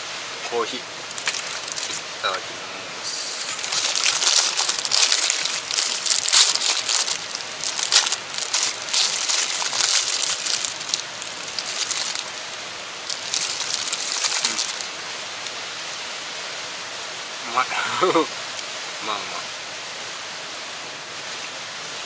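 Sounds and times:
background hiss: 0:00.0 - 0:22.0
plastic wrapper crinkling: 0:01.1 - 0:02.1, 0:03.4 - 0:16.0.

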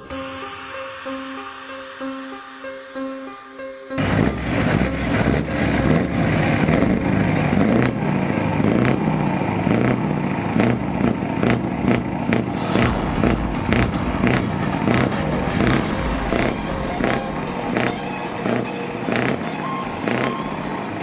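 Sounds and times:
diesel truck engine idling: 0:04.0 - 0:11.0.

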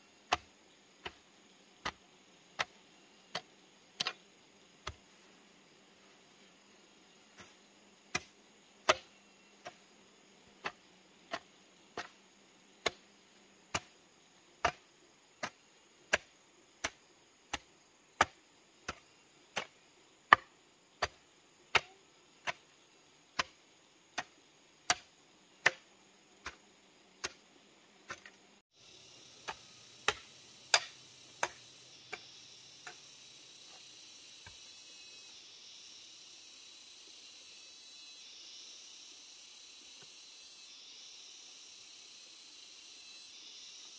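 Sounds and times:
steady high hiss: 0:00.0 - 0:43.9
hoe chopping into soil: 0:00.3 - 0:04.2, 0:04.8 - 0:05.2, 0:07.3 - 0:09.9, 0:10.5 - 0:12.2, 0:12.8 - 0:13.1, 0:13.7 - 0:14.0, 0:14.6 - 0:14.8, 0:15.4 - 0:19.0, 0:23.4 - 0:23.6, 0:24.2 - 0:26.6, 0:27.2 - 0:27.4, 0:28.1 - 0:28.4, 0:29.4 - 0:33.1.

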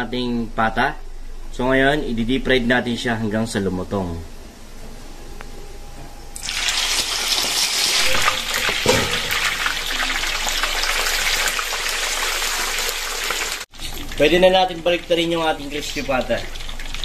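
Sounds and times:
meat sizzling in hot oil: 0:06.4 - 0:14.2, 0:15.6 - 0:17.0
oil crackling: 0:15.1 - 0:17.0.

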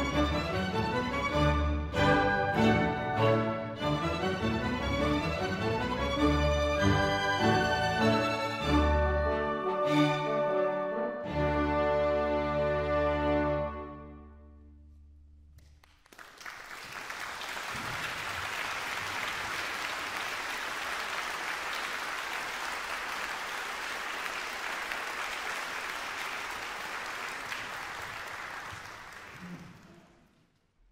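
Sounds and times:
audience applauding: 0:15.6 - 0:30.3.

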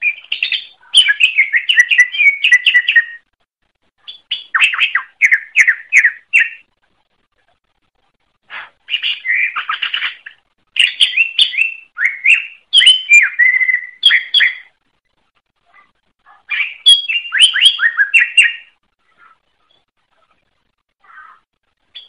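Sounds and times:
bird singing whistled notes: 0:00.0 - 0:03.2, 0:04.0 - 0:06.7, 0:08.9 - 0:14.7, 0:16.5 - 0:19.9.

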